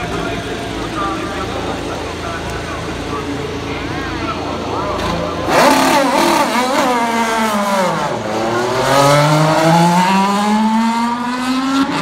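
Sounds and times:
racing car engine: 0:00.0 - 0:12.0.

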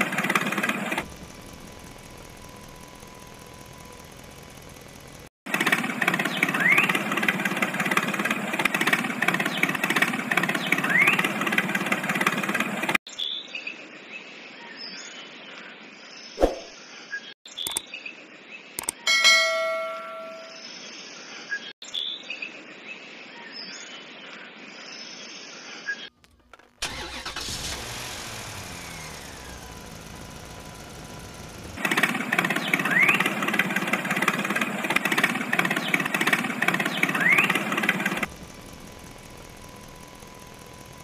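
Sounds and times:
tractor engine running: 0:00.0 - 0:13.0, 0:26.1 - 0:41.0.

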